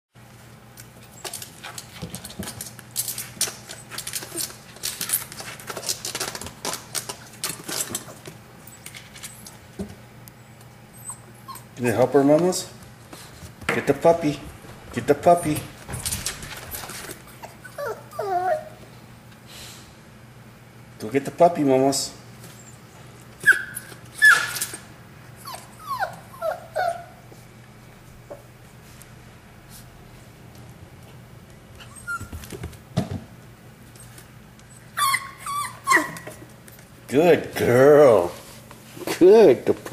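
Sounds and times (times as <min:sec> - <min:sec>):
puppy whimpering and yelping: 0:10.9 - 0:11.8, 0:16.8 - 0:18.8, 0:23.4 - 0:27.3, 0:31.8 - 0:32.4, 0:34.7 - 0:36.4.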